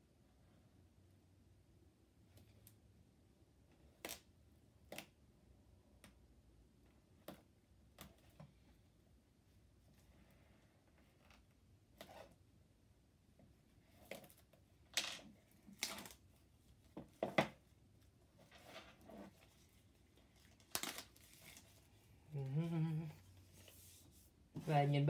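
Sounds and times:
plastic wrap tearing: 20.4 - 21.8.

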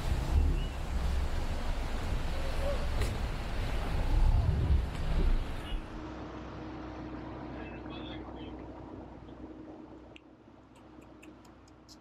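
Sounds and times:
wind buffeting microphone: 0.0 - 6.0
motorboat engine hum: 0.0 - 12.0.

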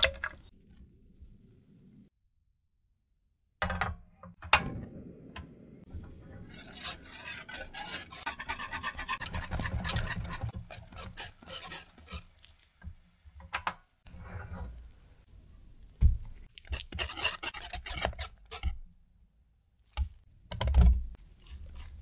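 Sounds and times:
whisk scraping metal saucepan: 6.0 - 12.4, 16.7 - 18.8.

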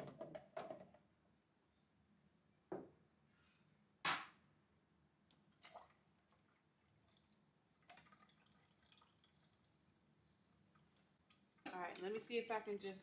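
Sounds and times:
juice trickling into pitcher: 5.5 - 9.9.

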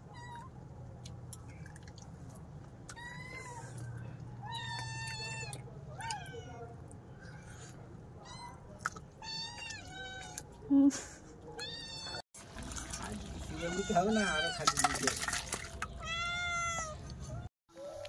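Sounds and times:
cat meowing: 13.5 - 14.6, 16.0 - 17.0.

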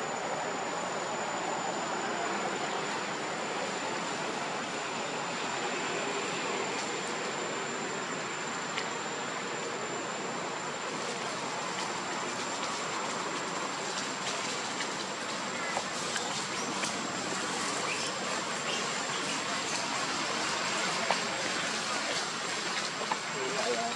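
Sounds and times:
even hiss: 0.1 - 23.9.

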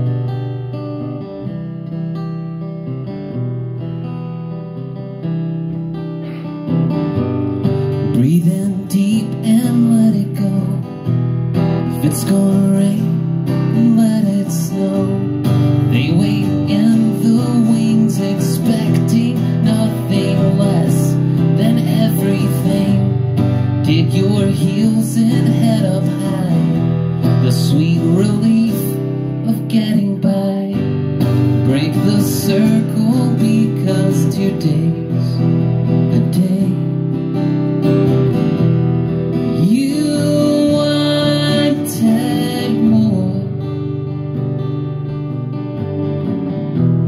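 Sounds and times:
acoustic guitar strumming: 0.0 - 47.0
man singing: 7.9 - 37.2, 39.5 - 44.0.

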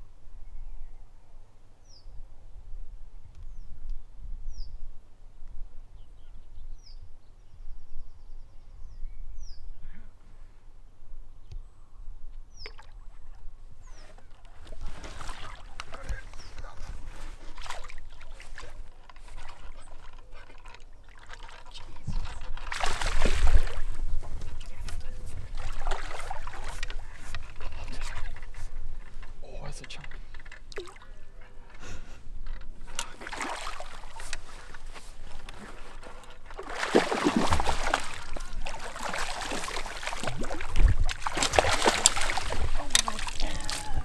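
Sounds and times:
fish splashing in water: 21.0 - 23.9, 25.5 - 26.8, 33.1 - 34.8, 36.4 - 44.0
wind rumble on microphone: 21.9 - 29.4, 40.2 - 44.0.

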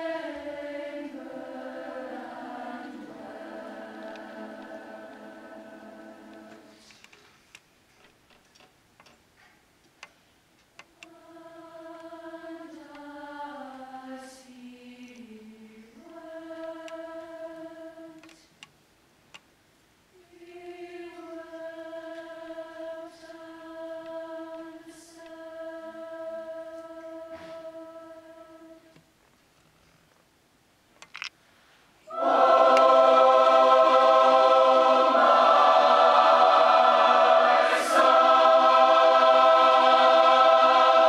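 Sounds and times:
choir singing held chords: 0.0 - 7.2, 10.8 - 18.4, 20.1 - 29.0, 32.0 - 41.0
faint clicks: 6.3 - 11.2, 18.2 - 19.5, 31.0 - 31.4.

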